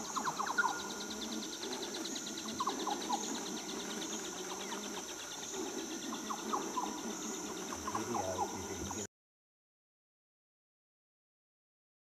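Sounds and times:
insects buzzing with pulsing trill: 0.0 - 9.1.

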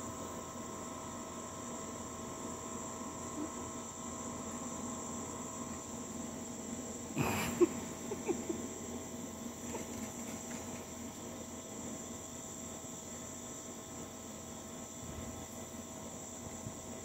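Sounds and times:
night insects chorus: 0.0 - 17.0.

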